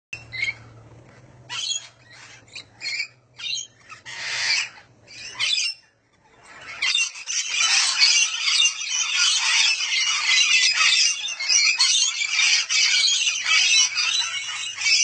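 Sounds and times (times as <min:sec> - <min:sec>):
parrots squawking: 0:00.2 - 0:00.8, 0:01.4 - 0:15.0.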